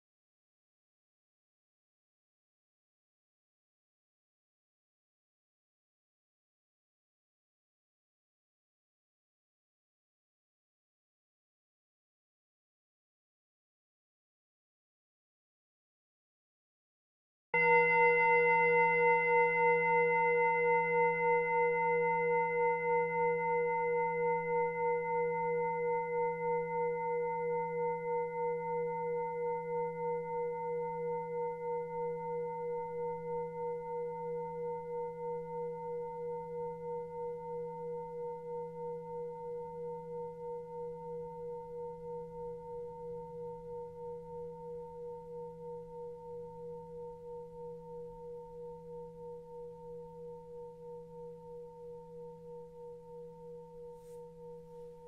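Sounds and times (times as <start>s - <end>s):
singing bowl ringing: 17.6s - 55.0s.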